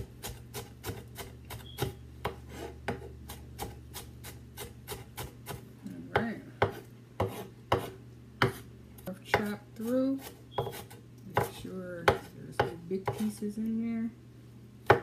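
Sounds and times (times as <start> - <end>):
knife chopping on wooden board: 0.0 - 8.6, 10.2 - 13.4.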